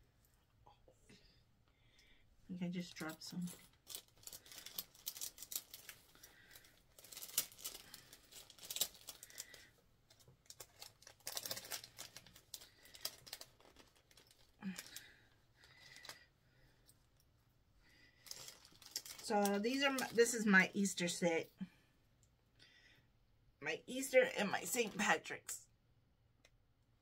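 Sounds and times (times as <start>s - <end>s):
plastic bag crinkling: 2.8s - 16.3s, 18.2s - 20.2s.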